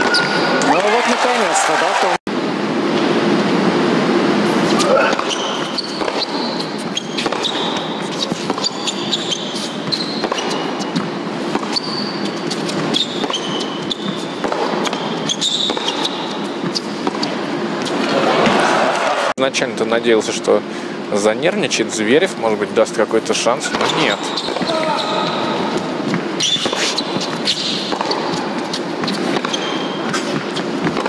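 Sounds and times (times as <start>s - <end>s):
shoes squeaking on court: 0.0s - 0.9s, 4.6s - 18.6s, 23.6s - 31.0s
crowd noise in arena: 0.0s - 31.0s
racket hitting tennis ball: 4.6s - 18.6s, 23.7s - 31.0s.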